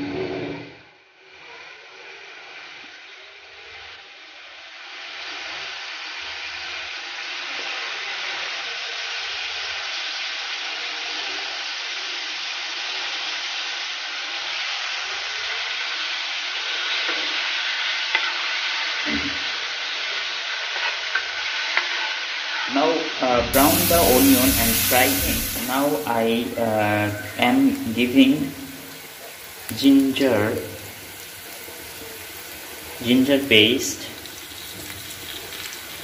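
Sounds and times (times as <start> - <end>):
onions sizzling in oil: 1.2 - 36.0.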